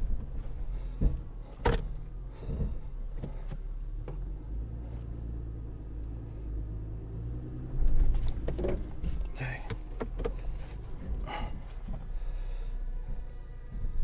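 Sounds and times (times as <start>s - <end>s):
knocks and clunks from suspension: 0.0s - 4.4s, 7.7s - 12.3s
engine running at low revs: 0.0s - 14.0s.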